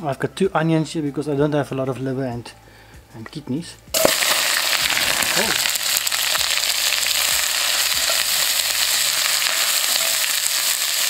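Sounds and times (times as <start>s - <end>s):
onions sizzling in hot oil: 4.0s - 11.0s
utensil stirring in pot: 4.0s - 11.0s.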